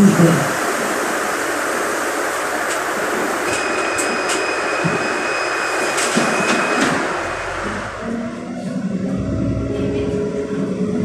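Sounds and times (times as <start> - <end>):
high electronic warning tone: 3.5 - 9.8.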